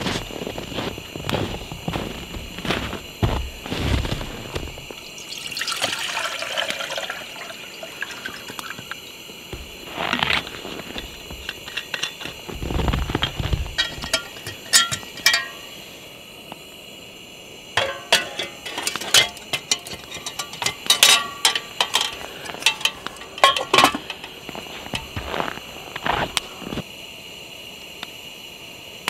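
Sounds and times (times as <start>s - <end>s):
metal pot clinking and scraping: 9.6s - 12.5s, 13.1s - 15.8s, 17.8s - 25.4s.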